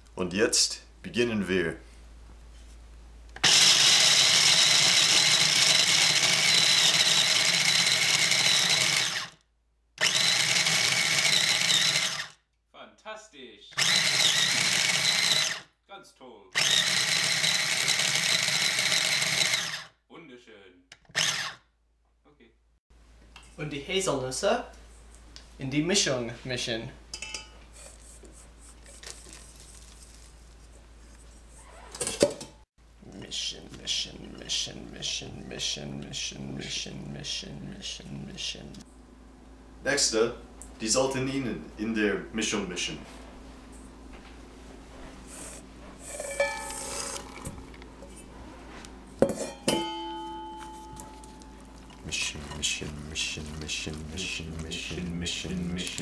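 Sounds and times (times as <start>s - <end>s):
food chopper grinding nuts: 3.4s - 9.4s, 10.0s - 12.4s, 13.8s - 15.6s, 16.6s - 19.9s, 21.0s - 21.6s, 51.0s - 56.0s
spatula scraping metal bowl: 45.5s - 47.5s.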